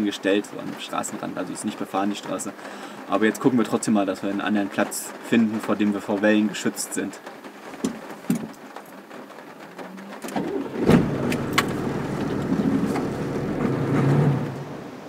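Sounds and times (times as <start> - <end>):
diesel engine starting and running: 9.5 - 15.0.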